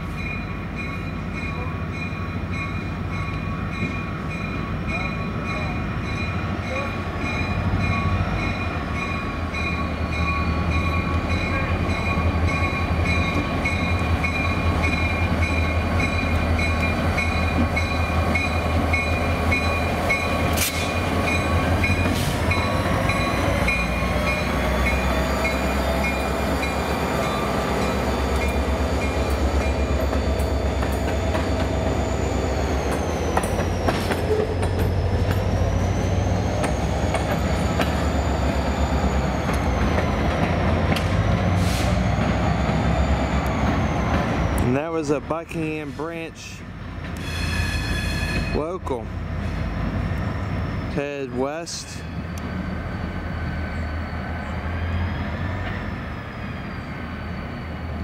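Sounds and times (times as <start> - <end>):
locomotive engine hum: 0.0 - 58.0
high wheel squeal: 47.2 - 48.7, 51.8 - 58.0.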